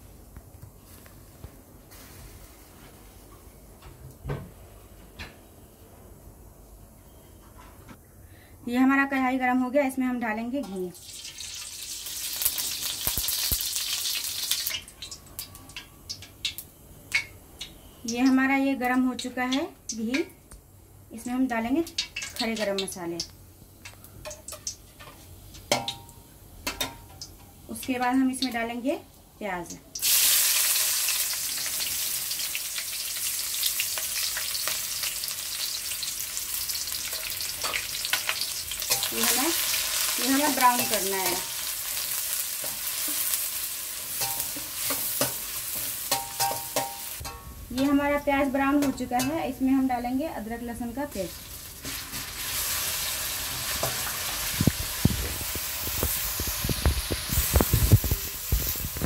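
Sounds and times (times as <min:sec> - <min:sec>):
fat sizzling in a hot pan: 0:01.9 - 0:02.8, 0:11.0 - 0:17.4, 0:30.0 - 0:48.8, 0:51.1 - 0:59.0
fat crackling and popping: 0:12.1 - 0:18.4, 0:53.8 - 0:59.0.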